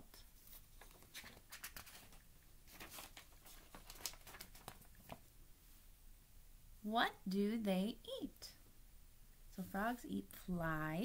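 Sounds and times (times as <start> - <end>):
paper booklet rustling: 0.2 - 5.3
page turning: 0.4 - 5.3.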